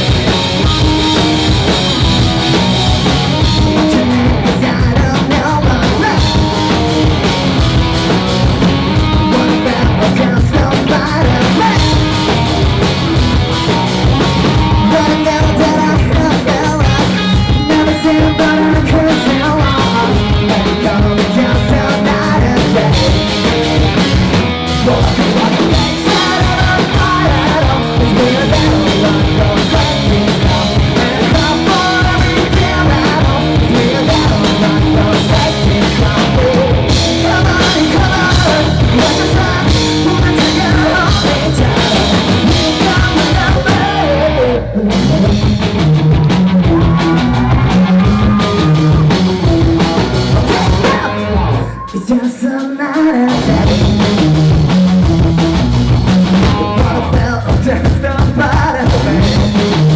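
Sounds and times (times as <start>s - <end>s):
distorted electric guitar: 0.0s - 59.9s
drum kit: 0.0s - 59.9s
person singing into a microphone: 3.4s - 6.9s, 9.0s - 12.3s, 14.7s - 23.4s, 24.7s - 45.6s, 50.3s - 54.2s, 56.4s - 59.7s.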